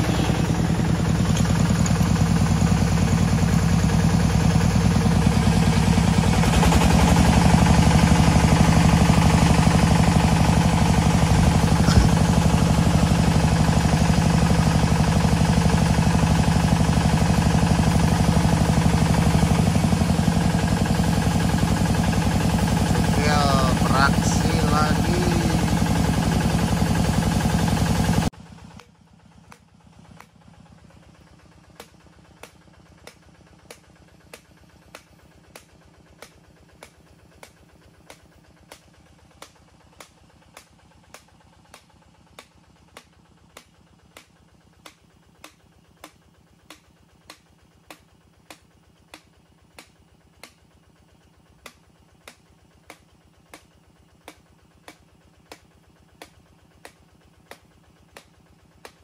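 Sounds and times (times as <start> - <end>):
drilling rig engine running: 0.0 - 39.8.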